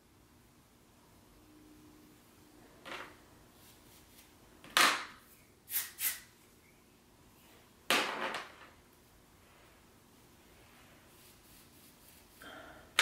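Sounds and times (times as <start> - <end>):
hairspray hissing bursts: 5.7 - 6.2.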